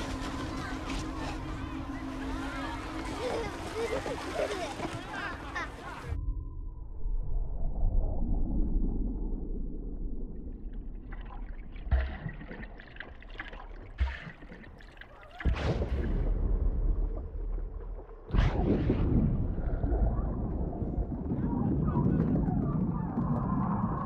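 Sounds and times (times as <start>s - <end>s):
churning splashing water: 0.0s - 6.0s, 10.8s - 18.4s
underwater rumble and gurgling: 0.0s - 24.0s.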